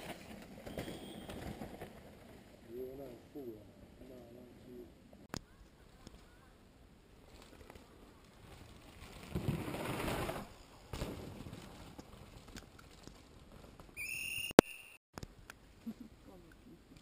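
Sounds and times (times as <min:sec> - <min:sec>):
bike tyres rushing on dirt: 0:00.0 - 0:02.8, 0:07.2 - 0:14.3
high-pitched whistle: 0:00.6 - 0:01.4, 0:14.0 - 0:15.0.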